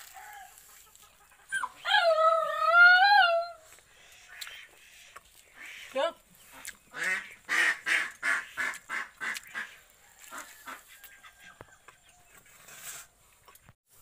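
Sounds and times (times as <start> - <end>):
biting and chewing: 3.7 - 12.6
waterfowl honking: 6.9 - 11.6.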